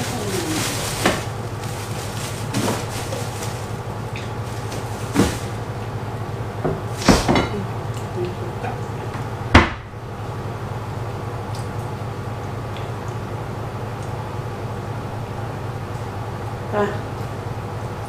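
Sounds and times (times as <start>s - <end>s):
steady low hum: 0.0s - 18.0s
knocks from rummaging in cupboard: 4.7s - 5.6s.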